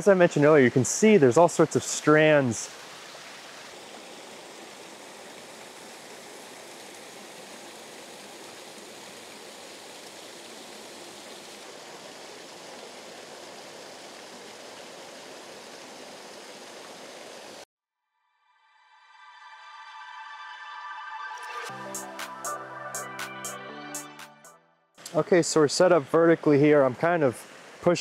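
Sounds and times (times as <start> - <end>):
waterfall splashing over rocks: 0.0 - 17.6.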